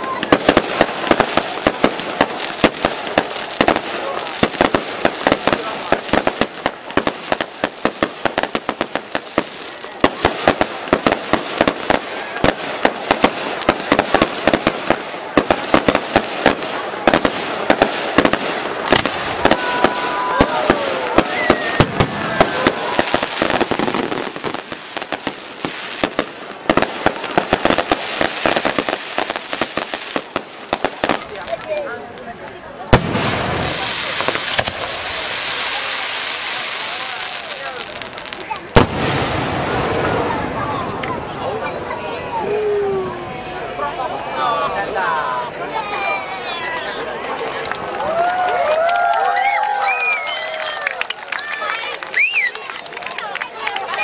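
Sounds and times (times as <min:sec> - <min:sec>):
fireworks bangs and pops: 0:00.0 - 0:42.2
fireworks crackling hiss: 0:00.0 - 0:46.4.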